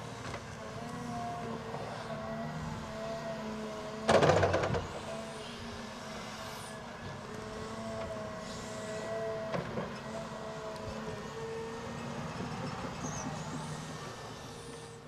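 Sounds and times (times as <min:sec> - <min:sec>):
excavator engine and hydraulics whine: 0:00.0 - 0:15.0.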